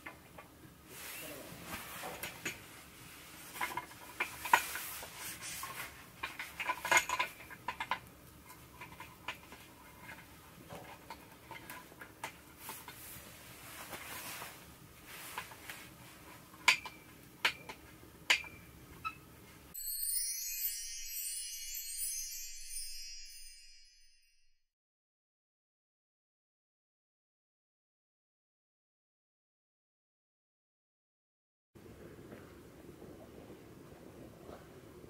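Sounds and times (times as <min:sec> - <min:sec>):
music: 0:19.8 - 0:24.6.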